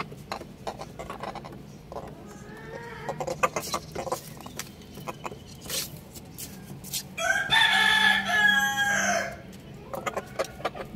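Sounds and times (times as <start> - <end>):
chickens pecking on concrete: 0.0 - 7.6, 9.3 - 10.9
rooster crowing: 7.2 - 9.4.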